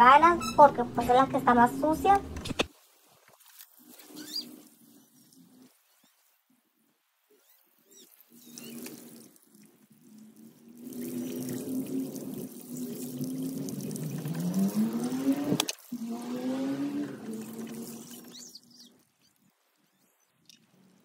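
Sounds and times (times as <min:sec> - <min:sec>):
tap water splashing onto clothes: 0:08.1 - 0:10.0, 0:10.7 - 0:18.5.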